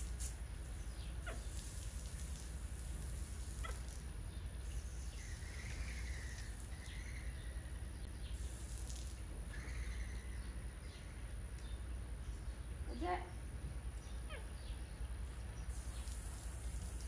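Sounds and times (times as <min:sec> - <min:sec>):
water trickling from hose nozzle: 0:01.2 - 0:05.5, 0:08.4 - 0:09.3, 0:15.7 - 0:17.0.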